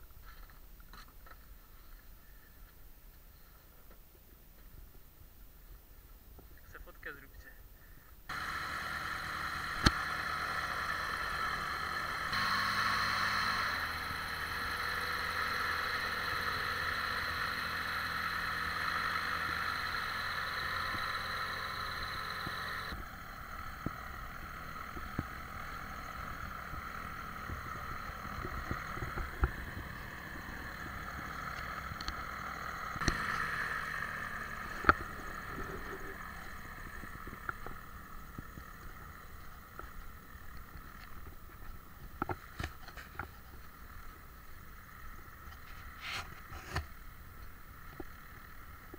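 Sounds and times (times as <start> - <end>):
light airplane engine droning: 6.6 - 48.9
sharp clicks: 8.3 - 38.7.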